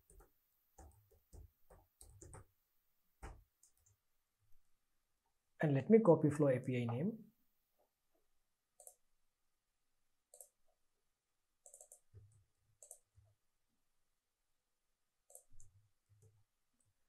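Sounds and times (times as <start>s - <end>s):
computer mouse and keyboard clicks: 8.8s - 9.0s, 10.3s - 10.6s, 11.6s - 13.3s, 15.3s - 16.4s.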